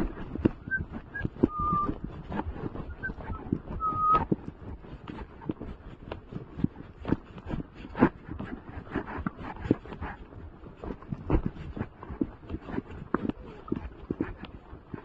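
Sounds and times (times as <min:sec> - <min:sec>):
soft hoofbeats on grass: 0:00.0 - 0:15.0
high whistle-like tone: 0:00.6 - 0:01.9, 0:03.8 - 0:04.2.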